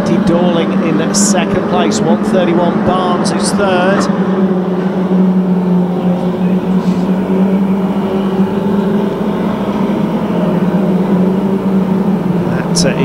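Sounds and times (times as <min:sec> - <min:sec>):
racing car engines droning: 0:00.0 - 0:13.0.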